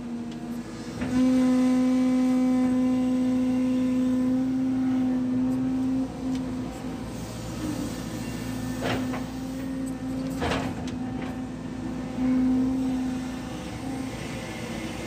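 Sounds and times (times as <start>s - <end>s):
excavator engine droning: 0.0s - 15.0s.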